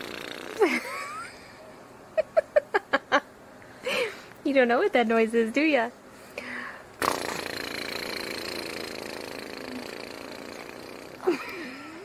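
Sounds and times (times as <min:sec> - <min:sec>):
small motor buzzing hum: 0:00.0 - 0:01.2, 0:07.0 - 0:12.0.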